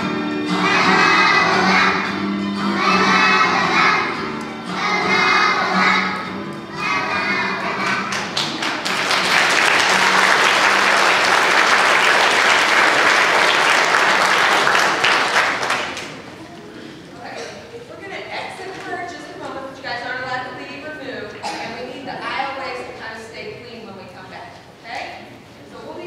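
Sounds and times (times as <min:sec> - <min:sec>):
children singing with music: 0:00.0 - 0:13.4
audience applauding: 0:07.8 - 0:16.4.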